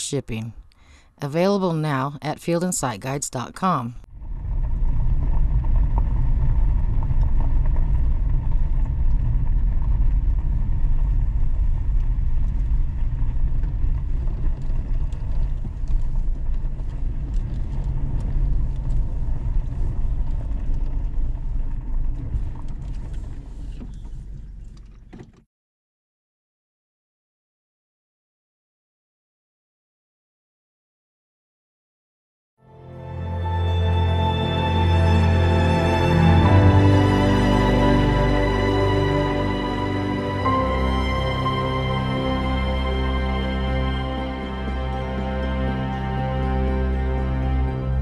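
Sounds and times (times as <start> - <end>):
engine and tyres rumbling: 4.1 - 25.4.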